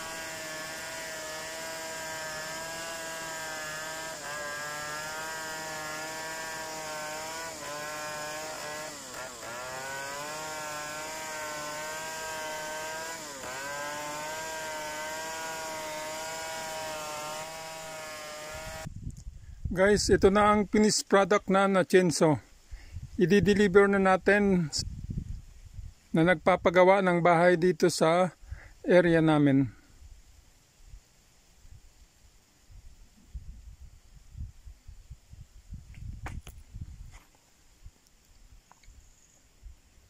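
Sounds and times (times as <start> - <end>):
chainsaw cutting wooden board: 0.0 - 18.9.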